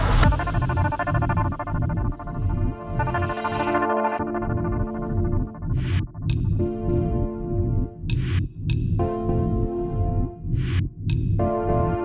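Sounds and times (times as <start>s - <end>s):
synthesizer chords: 0.1s - 8.4s, 9.0s - 12.0s
low electronic beat: 0.1s - 12.0s.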